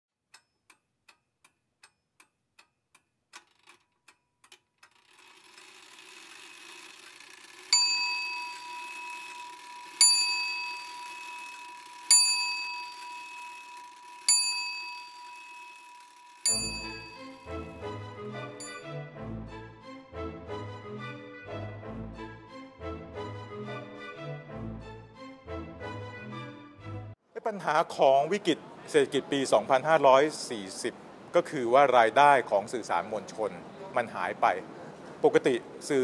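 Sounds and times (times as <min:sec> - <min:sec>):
faint clock ticking: 0:00.2 - 0:17.4
bell ringing: 0:07.5 - 0:19.0.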